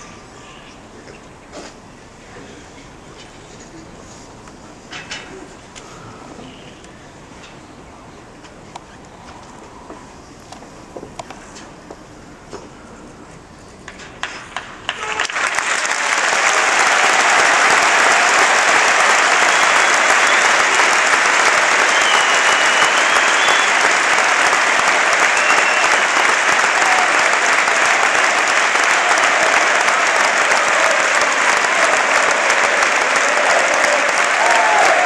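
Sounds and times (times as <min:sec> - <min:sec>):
stadium crowd applause: 0:13.8 - 0:35.0.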